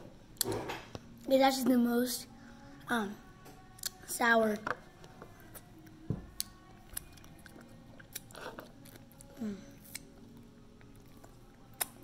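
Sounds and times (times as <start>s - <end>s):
child licking and chewing: 6.4s - 12.0s.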